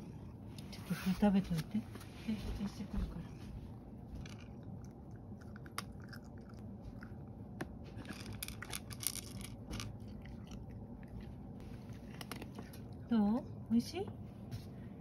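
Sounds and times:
cat crunching dry kibble: 0:04.2 - 0:13.1.

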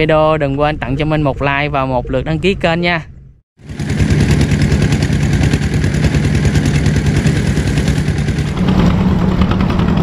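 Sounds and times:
small boat engine running: 0:03.6 - 0:10.0.

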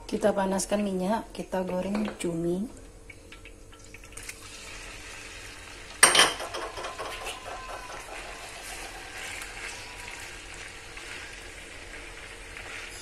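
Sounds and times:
squid frying in hot oil: 0:03.0 - 0:13.0.

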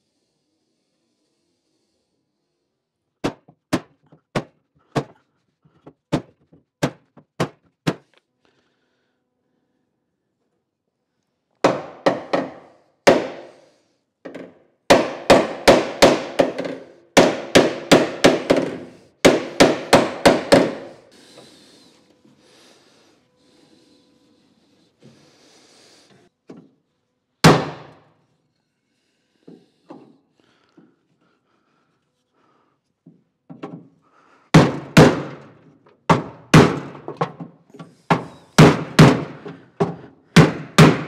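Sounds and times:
hammer on metal panel: 0:11.6 - 0:13.5, 0:14.3 - 0:21.0, 0:27.4 - 0:28.0, 0:34.5 - 0:37.4, 0:38.1 - 0:41.0.

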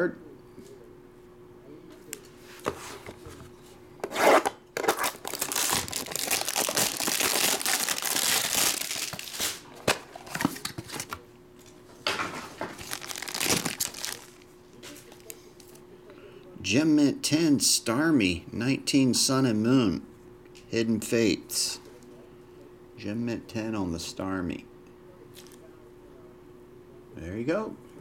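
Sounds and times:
plastic pack crinkling: 0:04.8 - 0:11.2, 0:12.6 - 0:14.5
plastic wrap tearing and crinkling: 0:04.8 - 0:11.2, 0:12.5 - 0:14.5.

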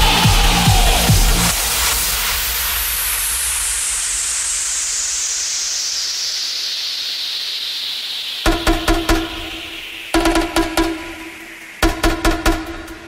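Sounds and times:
electronic bass beat: 0:00.0 - 0:01.7, 0:08.5 - 0:13.0
falling white-noise sweep: 0:00.0 - 0:13.0.

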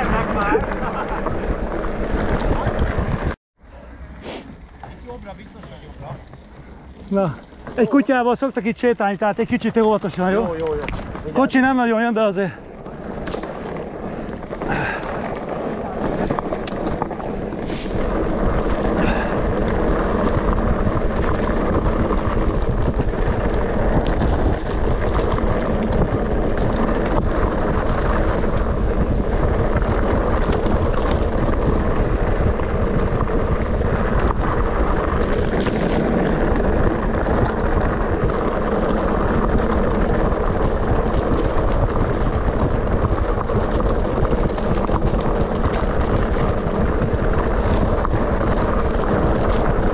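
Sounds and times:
wind buffeting microphone: 0:00.0 - 0:03.4, 0:09.2 - 0:49.9
bike tyres rolling on gravel: 0:00.0 - 0:49.9
bike knocks and rattles: 0:09.4 - 0:11.8, 0:12.5 - 0:49.9.

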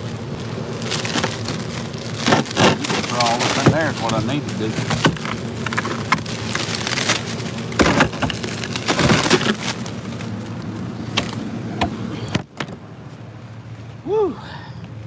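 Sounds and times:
plastic bags of ice crackling: 0:00.0 - 0:11.5
low hum: 0:00.0 - 0:15.0.

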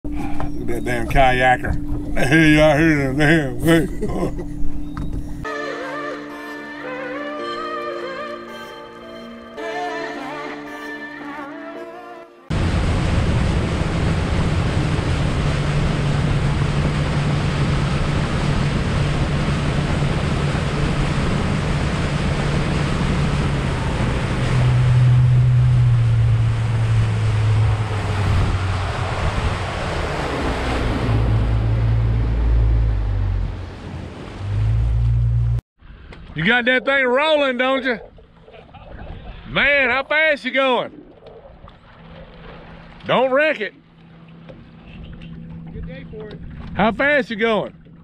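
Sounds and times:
outboard engine humming: 0:00.0 - 0:11.8, 0:12.4 - 0:36.2, 0:40.4 - 0:48.0
wind buffeting microphone: 0:12.5 - 0:32.1
water rushing along hull: 0:12.5 - 0:35.6, 0:37.2 - 0:48.0.

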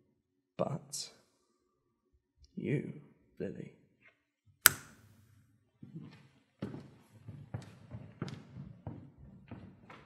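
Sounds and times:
footsteps on hard floor: 0:05.8 - 0:10.0.

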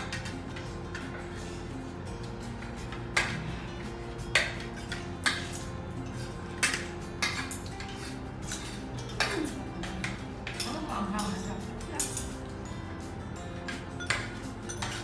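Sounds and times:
cutlery clinking on plates: 0:00.0 - 0:01.3, 0:04.3 - 0:12.5, 0:13.6 - 0:15.0.

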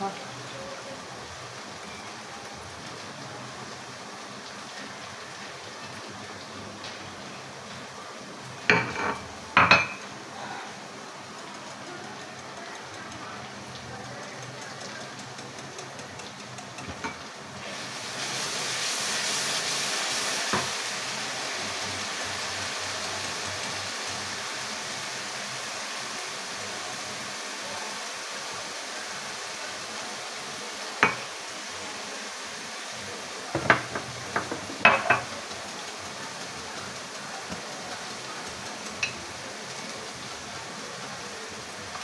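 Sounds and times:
pan sizzling on gas flame: 0:00.0 - 0:42.0
wire whisk beating yogurt: 0:11.3 - 0:17.2, 0:33.6 - 0:42.0.

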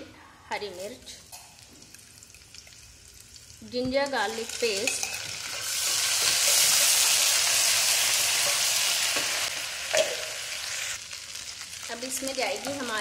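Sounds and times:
paste sizzling in hot oil: 0:01.3 - 0:13.0.

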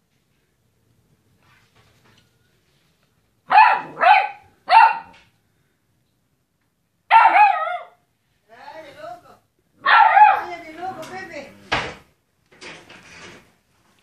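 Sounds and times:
puppy barking: 0:03.5 - 0:05.2, 0:07.1 - 0:08.0, 0:09.8 - 0:10.6.

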